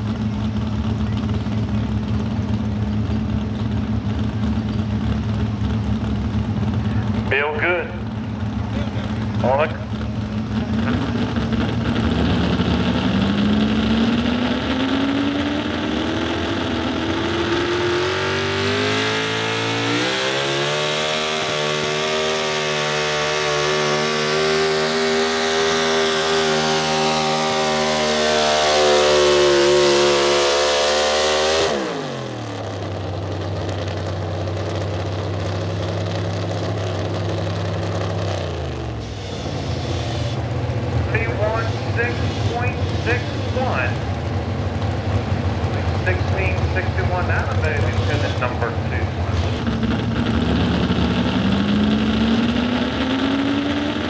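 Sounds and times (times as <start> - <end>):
engine idling: 0.0 - 14.2, 31.8 - 52.2
truck engine at full throttle: 0.0 - 54.0.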